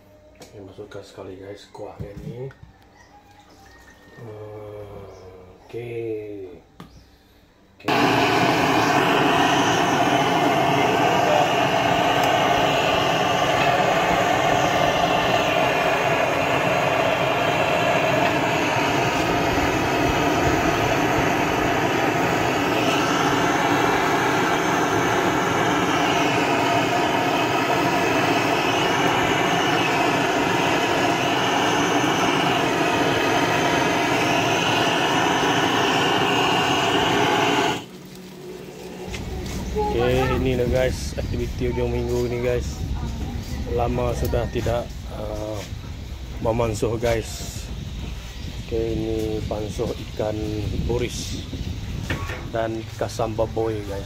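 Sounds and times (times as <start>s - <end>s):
blowtorch hissing: 7.8s - 54.0s.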